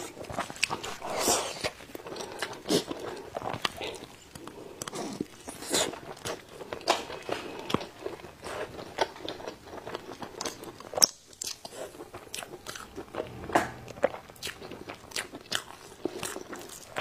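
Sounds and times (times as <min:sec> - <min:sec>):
person chewing: 0:00.0 - 0:13.4.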